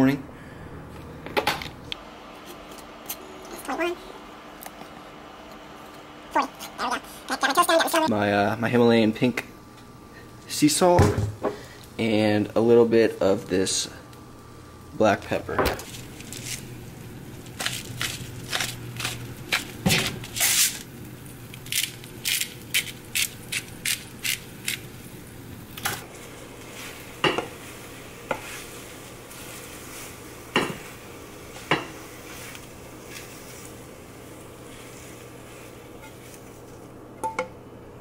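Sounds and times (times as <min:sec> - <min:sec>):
low steady hum: 0:00.0 - 0:38.0
pepper grinder crunching: 0:15.8 - 0:16.7, 0:17.4 - 0:25.1.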